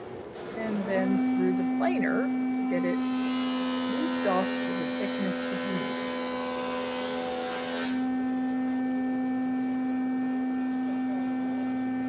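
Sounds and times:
thickness planer humming: 0:00.0 - 0:09.0
planer cutting wood: 0:00.7 - 0:08.2.

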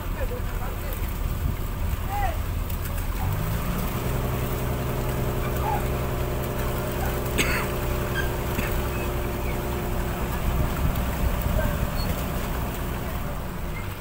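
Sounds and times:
boat engine running: 0:00.0 - 0:14.0
fish splashing into water: 0:00.7 - 0:14.0.

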